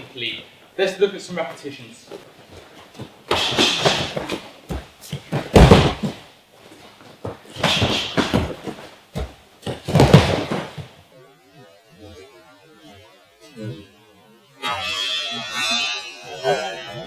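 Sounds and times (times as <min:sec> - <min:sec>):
bare feet slapping on mat: 0:02.5 - 0:06.3, 0:07.0 - 0:11.0
heavy thuds on mat: 0:03.3 - 0:06.3, 0:07.2 - 0:11.0.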